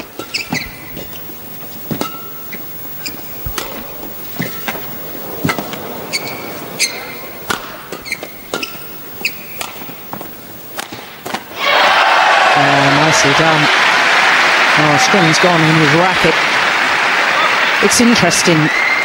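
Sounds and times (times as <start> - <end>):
shoes squeaking on court: 0.0 - 10.8
hall hum: 0.0 - 17.0
rackets striking shuttlecock: 0.2 - 11.5.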